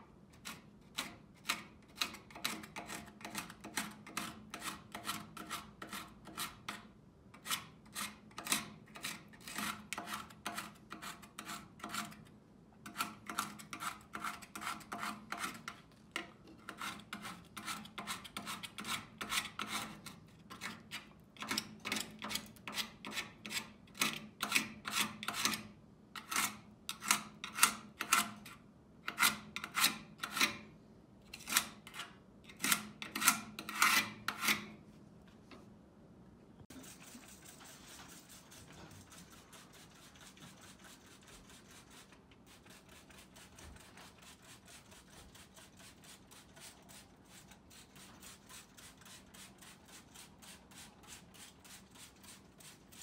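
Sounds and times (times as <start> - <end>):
metal tool scraping grime: 0.4 - 6.8, 7.4 - 12.2, 12.8 - 15.9, 16.5 - 30.7, 31.3 - 34.8, 36.7 - 53.0.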